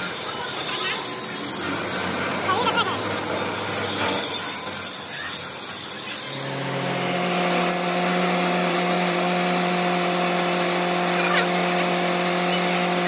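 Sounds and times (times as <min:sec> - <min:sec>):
electric hoist motor humming: 0:00.0 - 0:13.0.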